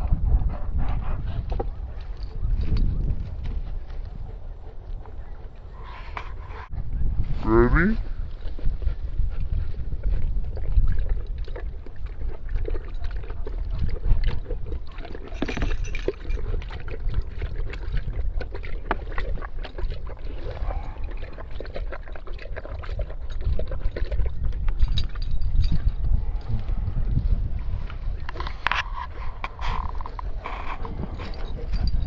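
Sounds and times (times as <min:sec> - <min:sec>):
wind rumbling on microphone: 0:00.0 - 0:32.0
dog lapping water: 0:08.4 - 0:32.0.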